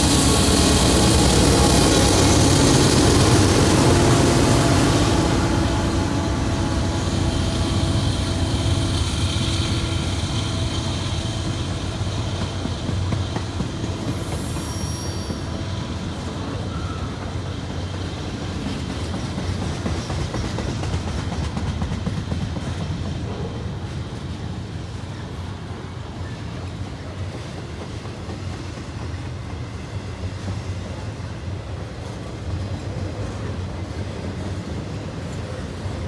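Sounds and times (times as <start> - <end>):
freight train wheels rumbling: 0.0 - 36.0
faint clickety-clack: 16.2 - 24.9, 26.2 - 36.0.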